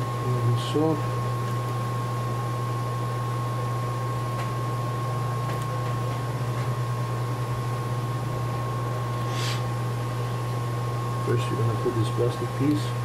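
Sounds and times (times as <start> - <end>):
low electrical hum: 0.0 - 13.0
hiss: 9.3 - 9.6.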